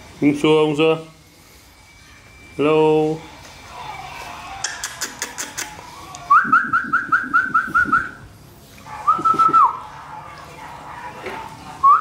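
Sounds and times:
person whistling rising notes: 6.3 - 8.2.

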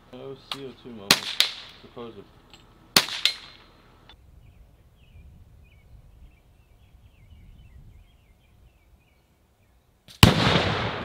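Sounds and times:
faint bird song: 3.6 - 10.1.

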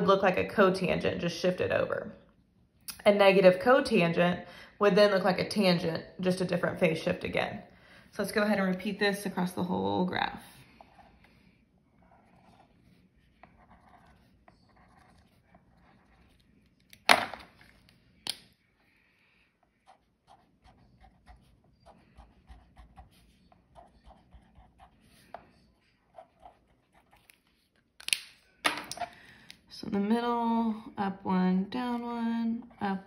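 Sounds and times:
pen scratching on paper: 10.8 - 16.8, 19.6 - 27.6.

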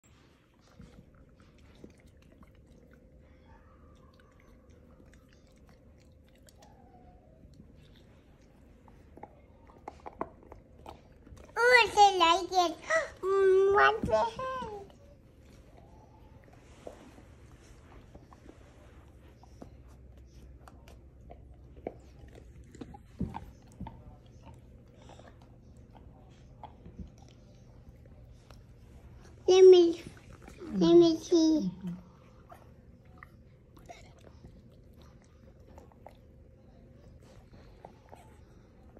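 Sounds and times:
faint steady hum: 0.0 - 38.9
dog chewing toy: 4.2 - 18.7, 19.4 - 31.3.

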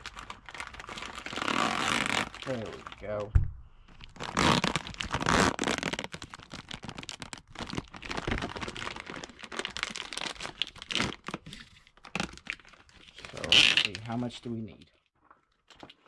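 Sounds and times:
plastic bag crinkling: 0.0 - 3.3, 3.9 - 14.3.

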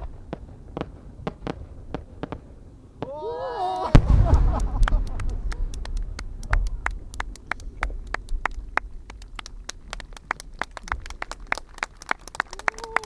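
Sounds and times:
low rumble of fireworks: 0.0 - 13.0
people clapping: 3.6 - 13.0.

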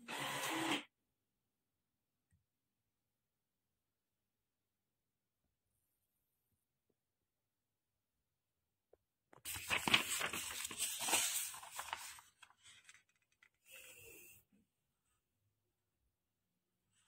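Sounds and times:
paper rustling and crackling: 9.4 - 13.8.

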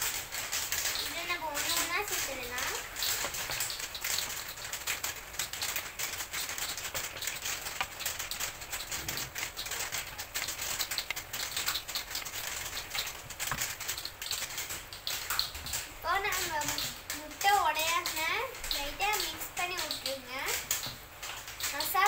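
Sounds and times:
masala sizzling in frying pan: 0.0 - 22.0.

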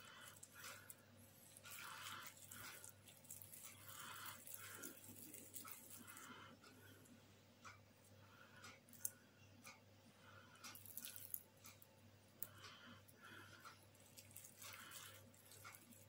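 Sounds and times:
soft hand handling sounds: 0.0 - 7.2, 10.7 - 16.0.

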